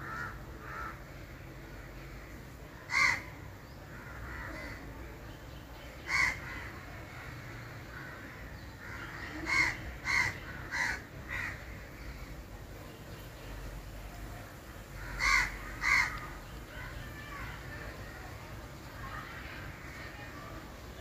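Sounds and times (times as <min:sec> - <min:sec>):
crow cawing: 0:00.0 - 0:01.1, 0:02.9 - 0:04.8, 0:06.1 - 0:06.8, 0:07.5 - 0:12.3, 0:15.0 - 0:16.3.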